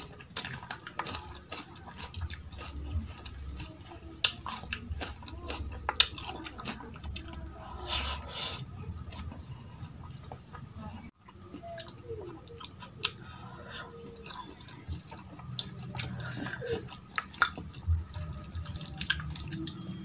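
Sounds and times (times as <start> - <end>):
lip smacks and chewing: 11.2 - 20.0.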